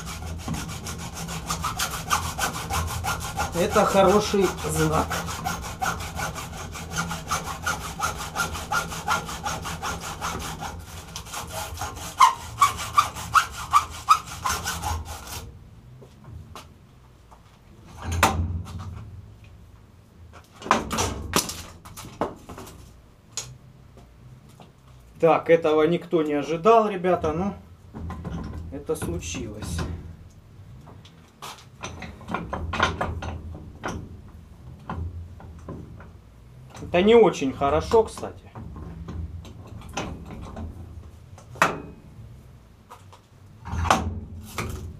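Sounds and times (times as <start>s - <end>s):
hacksaw cutting copper: 0.0s - 15.5s
metal clunks and scrapes: 17.8s - 19.2s, 27.9s - 30.2s, 30.8s - 36.9s, 38.5s - 42.1s, 43.0s - 44.9s.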